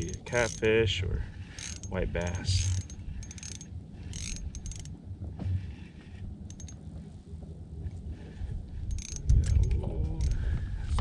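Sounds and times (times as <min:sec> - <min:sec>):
fishing reel ticking: 0:00.0 - 0:00.7, 0:01.6 - 0:04.9, 0:06.5 - 0:06.8, 0:08.9 - 0:10.4
wind rumble on microphone: 0:00.0 - 0:11.0.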